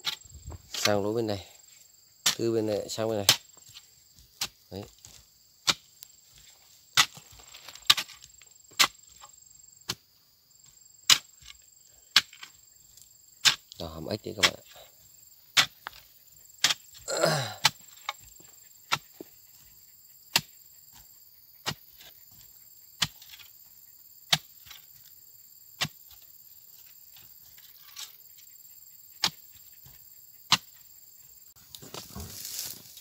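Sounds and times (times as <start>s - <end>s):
digging bar striking stony earth: 0.0s - 1.2s, 2.2s - 10.0s, 11.0s - 14.8s, 15.5s - 19.3s, 20.3s - 23.6s, 24.3s - 25.1s, 25.7s - 28.2s, 29.2s - 30.9s, 31.7s - 33.0s
person grunting: 17.0s - 17.7s.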